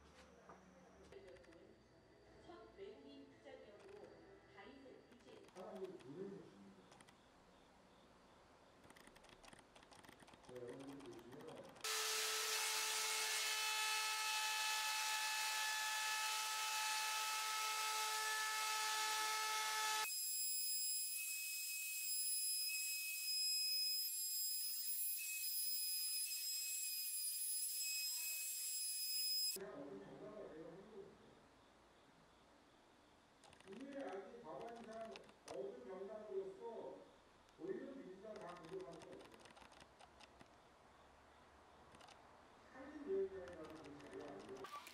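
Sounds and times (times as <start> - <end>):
router high whine: 11.8 - 29.6.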